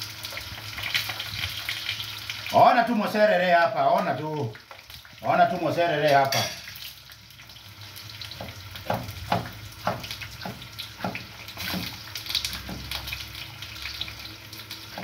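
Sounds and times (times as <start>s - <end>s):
sausages sizzling in a pan: 0.0s - 15.0s
knife chopping on wooden board: 8.4s - 12.0s.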